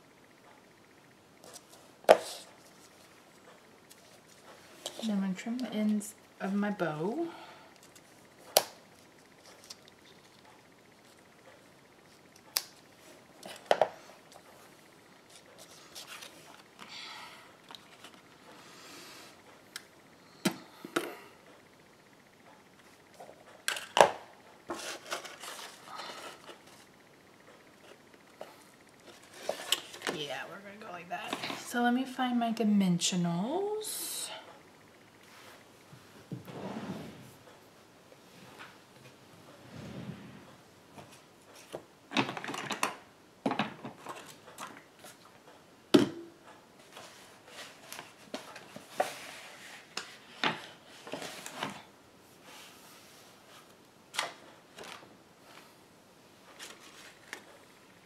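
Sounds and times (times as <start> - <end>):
paper rustling and clattering: 24.7 - 26.8, 54.1 - 55.1, 56.5 - 57.5.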